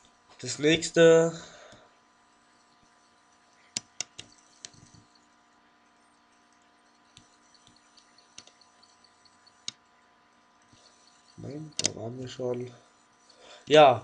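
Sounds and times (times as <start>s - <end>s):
faint electrical hum: 0.0s - 14.0s
computer mouse clicks: 2.5s - 9.9s, 10.6s - 12.7s
light ticks: 6.1s - 9.9s.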